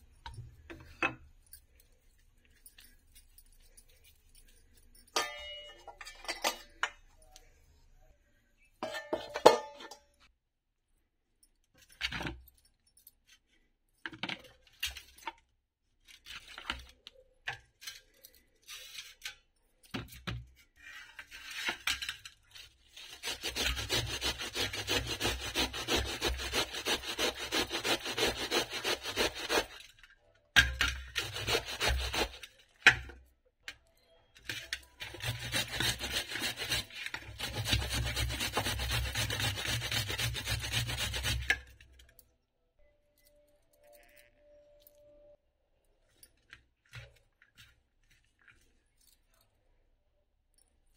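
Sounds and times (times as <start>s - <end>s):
steel plate clanking on bowl: 5.2s - 7.0s, 8.8s - 10.0s
grating on a metal grater: 22.9s - 29.9s, 31.1s - 32.6s, 35.0s - 41.7s.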